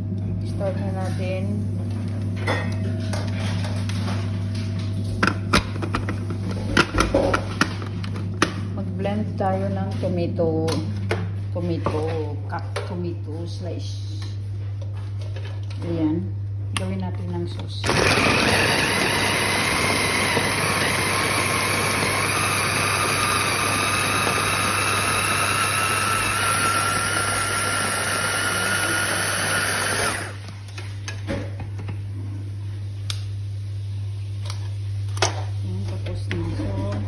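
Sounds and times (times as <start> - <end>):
electric food chopper running: 17.8 - 30.6.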